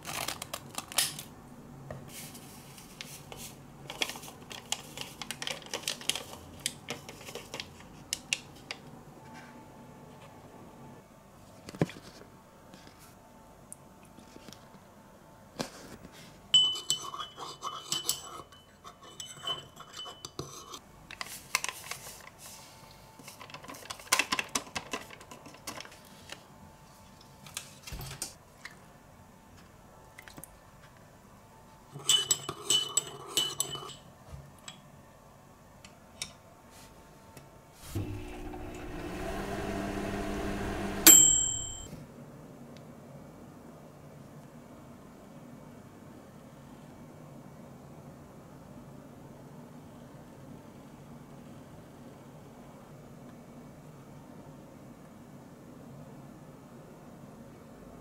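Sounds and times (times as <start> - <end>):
spoon clinking in ceramic mug: 16.6 - 20.8, 32.0 - 34.0
microwave oven humming: 37.8 - 42.0
microwave beep: 38.0 - 41.9.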